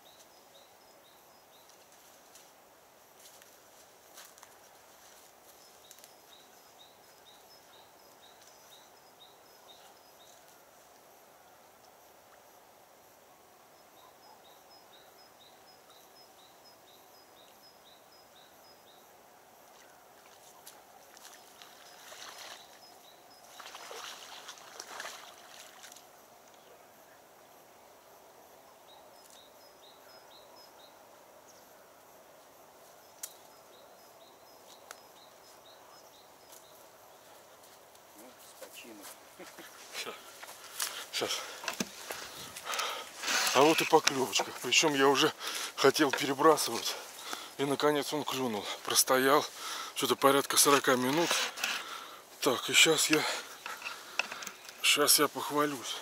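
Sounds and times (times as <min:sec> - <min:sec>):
rustling: 0:37.3 - 0:47.6, 0:50.5 - 0:54.9.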